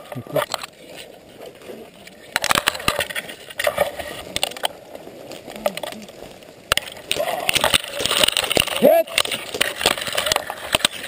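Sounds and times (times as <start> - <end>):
branches scraping: 0.0 - 11.0
twigs cracking: 0.3 - 11.0.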